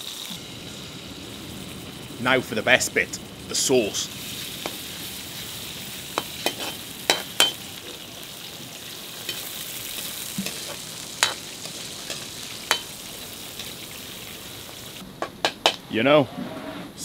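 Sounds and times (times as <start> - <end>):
spices sizzling in oil: 0.0 - 15.8
metal spatula scraping a wok: 6.2 - 7.6.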